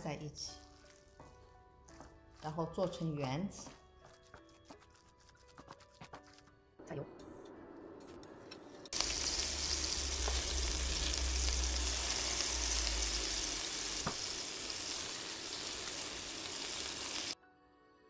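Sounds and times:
meatballs sizzling in oil: 9.0s - 17.4s.

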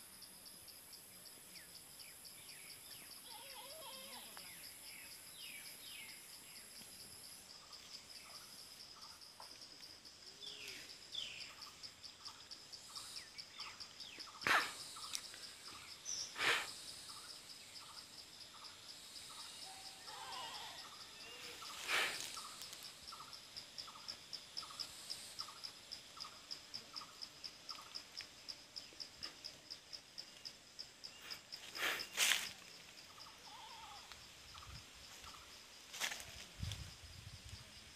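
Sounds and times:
insects chirping: 0.0s - 37.9s
faint bird chirps: 1.5s - 6.8s.

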